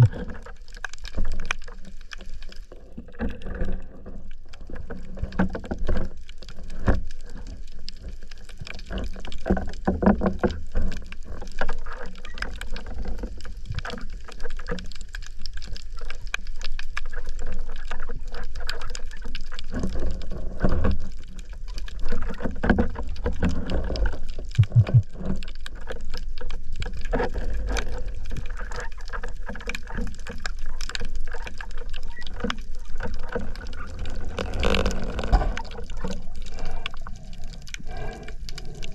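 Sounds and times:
crackling clicks: 0.0s - 38.9s
low thumps: 24.6s - 25.1s.

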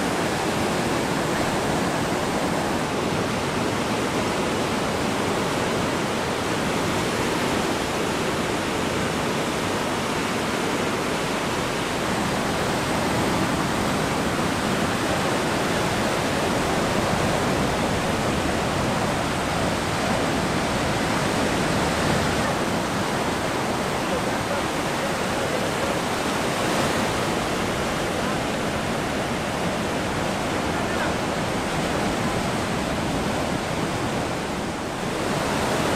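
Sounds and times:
ocean surf breaking: 0.0s - 35.9s.

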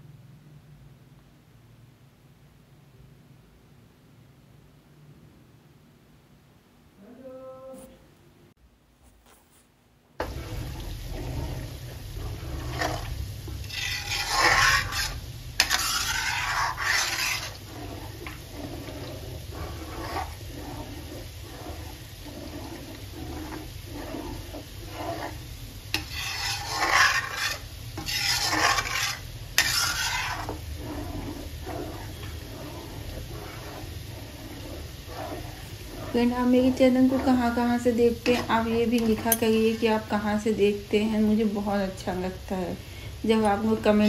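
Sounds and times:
butter bubbling: 10.2s - 40.2s
metal spatula scraping pan: 10.2s - 40.3s, 43.3s - 44.0s.

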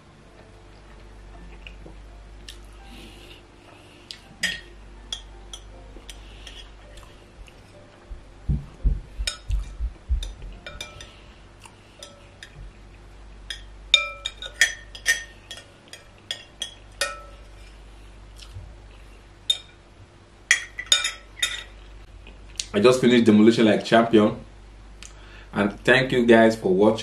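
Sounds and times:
metal spoon clinking glass bowl: 10.2s - 11.2s, 13.5s - 17.5s, 20.5s - 21.7s.

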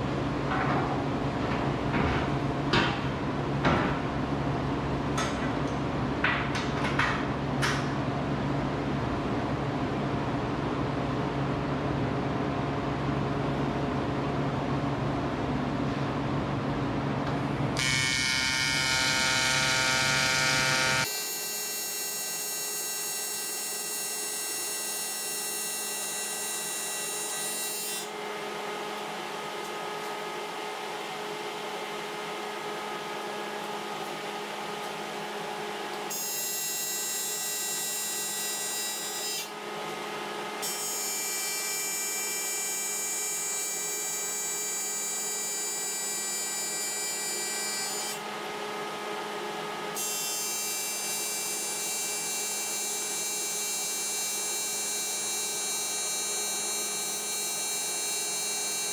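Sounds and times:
arc welding buzz: 17.7s - 48.4s, 49.9s - 58.9s.

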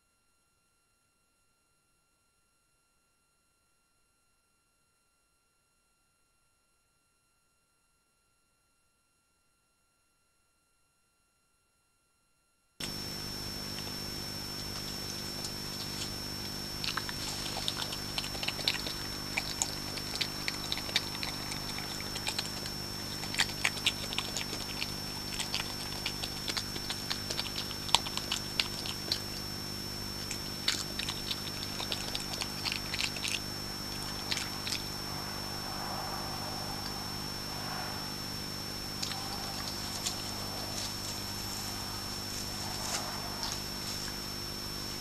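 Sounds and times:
high-pitched whine and low hum: 0.0s - 45.0s
badger crunching peanuts: 14.6s - 29.5s, 30.2s - 35.1s, 39.0s - 44.2s.

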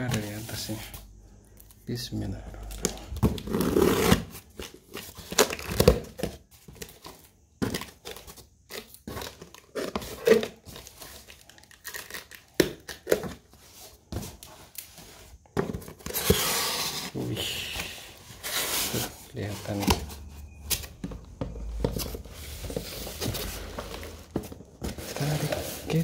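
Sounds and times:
cardboard scraping and crinkling: 0.0s - 1.0s, 13.2s - 26.0s
packing tape tearing: 9.4s - 13.2s.

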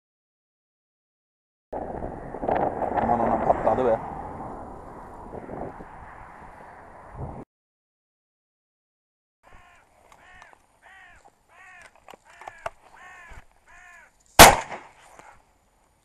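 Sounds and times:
crow cawing: 9.4s - 14.2s
shotgun shot: 14.4s - 15.0s.

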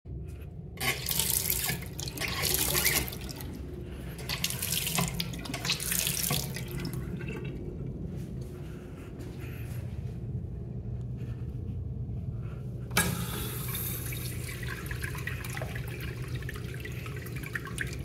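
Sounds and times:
faucet water running into sink: 0.8s - 3.5s, 4.2s - 7.0s, 13.0s - 18.0s.

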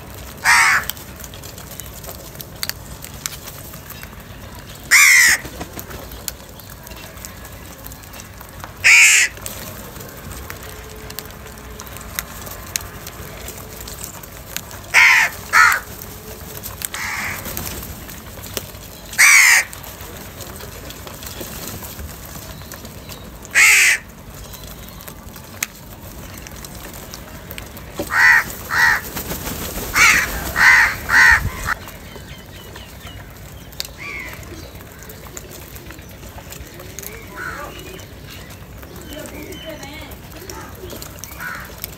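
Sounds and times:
crows cawing: 0.4s - 1.1s, 4.9s - 5.5s, 8.8s - 9.5s, 14.9s - 16.0s, 16.9s - 17.5s, 19.2s - 19.9s, 23.5s - 24.1s, 28.0s - 31.8s, 34.0s - 34.5s, 37.2s - 37.8s, 41.2s - 41.9s.

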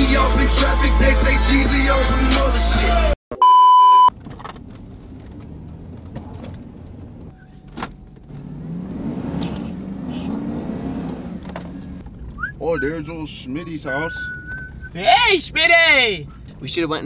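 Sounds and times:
engine and road noise in cabin: 3.4s - 17.0s.

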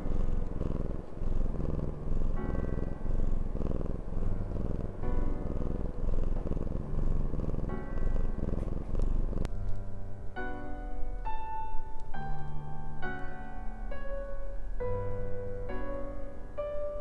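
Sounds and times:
cat purring: 0.0s - 9.5s
soft piano music: 0.0s - 17.0s.

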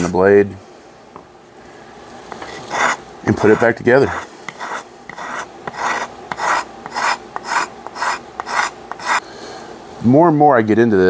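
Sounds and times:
chisel scraping wood: 2.3s - 9.2s.

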